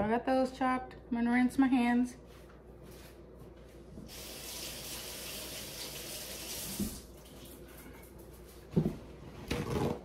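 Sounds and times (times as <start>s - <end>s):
tap water running: 4.0s - 8.5s.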